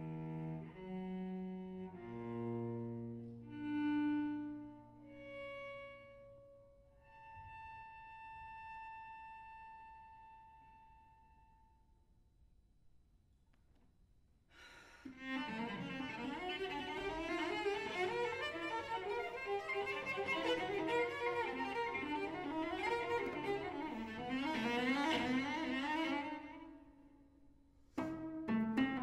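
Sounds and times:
bowed cello playing fast: 0:00.0 - 0:06.2, 0:15.1 - 0:26.9.

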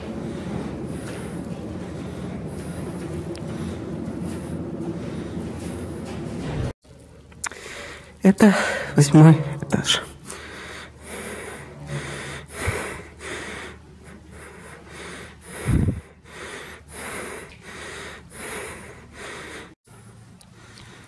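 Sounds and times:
person breathing heavily: 0:07.5 - 0:19.8.

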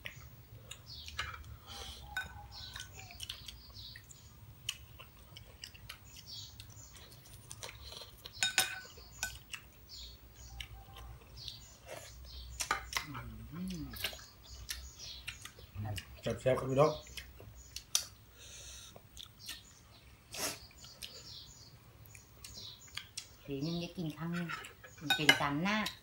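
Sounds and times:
wet chewing and sucking: 0:00.0 - 0:08.4, 0:13.7 - 0:16.2, 0:17.0 - 0:23.4
spoon clicking on plates: 0:02.1 - 0:03.0, 0:08.3 - 0:09.6.

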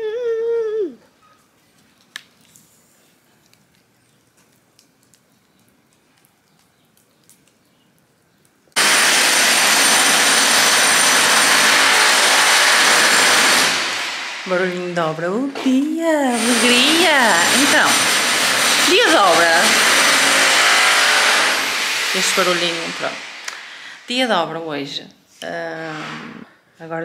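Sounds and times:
wood fire crackling: 0:01.4 - 0:11.0, 0:12.8 - 0:20.6
power tool whining: 0:08.8 - 0:15.0, 0:16.3 - 0:23.8.

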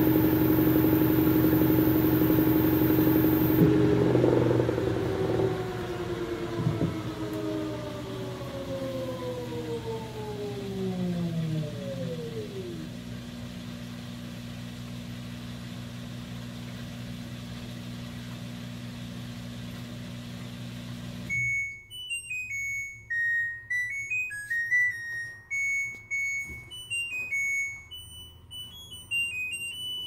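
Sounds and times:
washing machine humming: 0:00.0 - 0:23.1
high beeping tune: 0:21.3 - 0:30.0.

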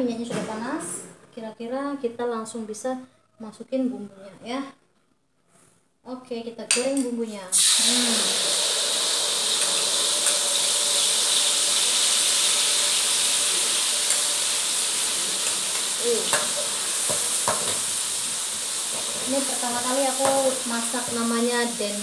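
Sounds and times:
spice paste sizzling in oil: 0:07.5 - 0:22.0
spatula tapping a pan: 0:15.4 - 0:17.9, 0:20.2 - 0:21.2.

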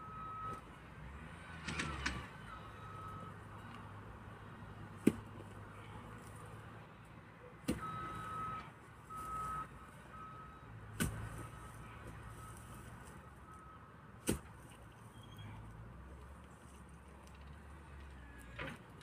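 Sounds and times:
digging tool thudding into soil: 0:05.0 - 0:05.3, 0:07.6 - 0:07.9, 0:10.9 - 0:11.4, 0:14.2 - 0:14.6.

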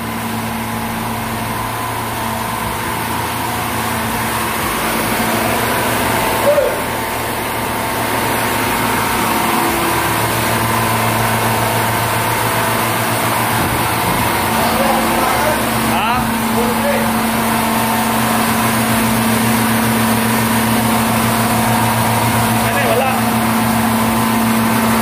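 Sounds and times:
air compressor drone: 0:00.0 - 0:25.0.

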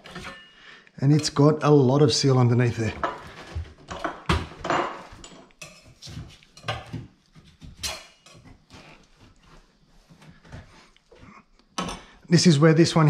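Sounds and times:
metal scraper scraping sink: 0:00.0 - 0:00.5.

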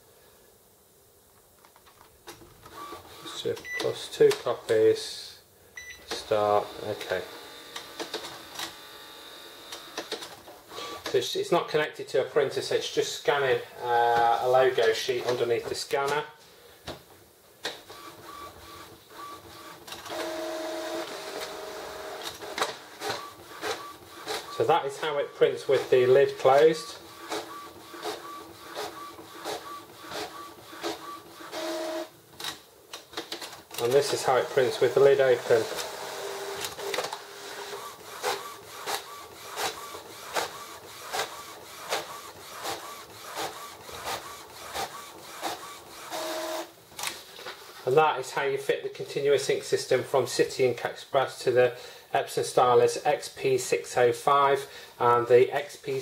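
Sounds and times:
printer motors whining: 0:06.1 - 0:11.1, 0:17.9 - 0:32.1, 0:33.8 - 0:46.7.

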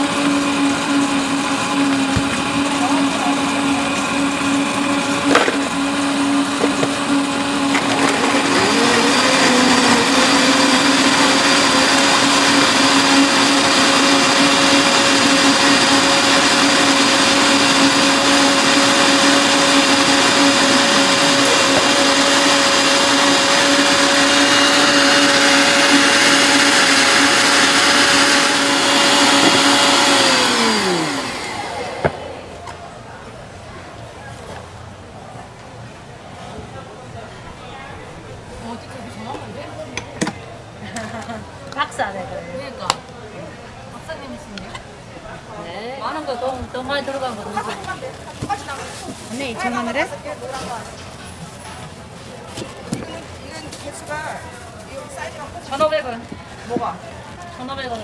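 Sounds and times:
blenders whining: 0:00.0 - 0:32.8.

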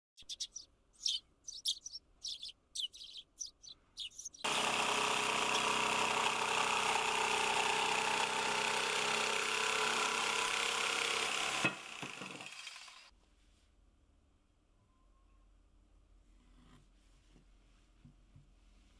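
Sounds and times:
birds chirping: 0:00.2 - 0:04.5, 0:05.4 - 0:05.8
electric jigsaw cutting wood: 0:04.4 - 0:13.1.

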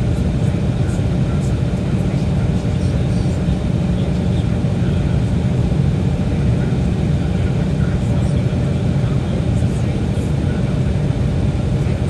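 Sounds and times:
jet engines humming in cabin: 0:00.0 - 0:12.0.

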